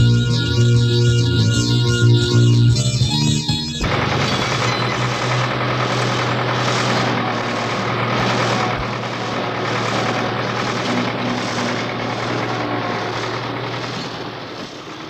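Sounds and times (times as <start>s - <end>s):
pulsing mechanical din: 3.5s - 15.0s
low machinery hum: 3.8s - 15.0s.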